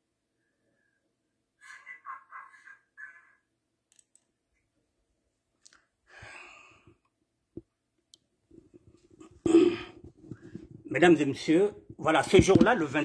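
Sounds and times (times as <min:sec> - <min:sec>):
faint clicks: 0:03.9 - 0:04.3.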